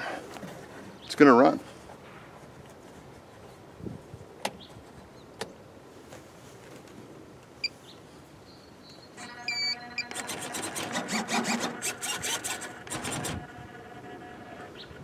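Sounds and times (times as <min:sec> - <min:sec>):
short electronic beep: 0:09.2 - 0:10.2
small electric motor whirring: 0:09.2 - 0:14.9.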